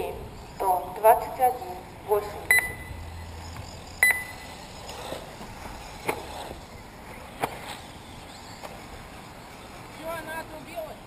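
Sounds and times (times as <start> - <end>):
outdoor background noise: 0.0 - 11.0
short electronic beep: 2.5 - 3.1, 4.0 - 4.5.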